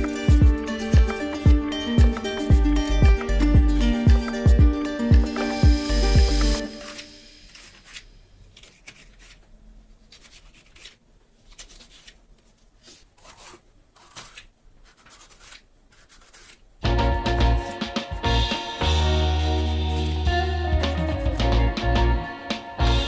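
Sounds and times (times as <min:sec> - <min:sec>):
background music: 0:00.0 - 0:08.0, 0:16.8 - 0:23.0
knife cutting pepper on plastic mat: 0:06.9 - 0:16.7.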